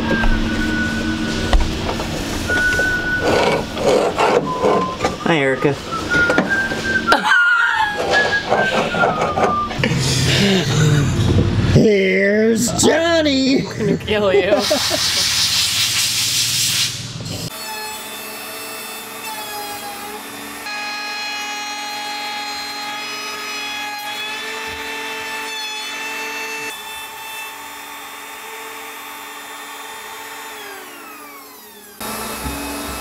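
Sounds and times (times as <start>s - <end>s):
hole saw grinding through wood: 2.5s - 7.0s, 7.8s - 9.8s
power drill motor whine: 2.5s - 9.8s, 28.6s - 33.0s.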